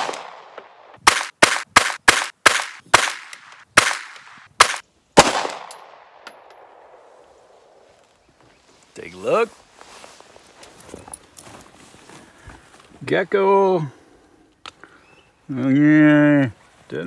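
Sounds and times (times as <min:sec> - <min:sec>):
pistol shots ringing: 0:00.0 - 0:06.8.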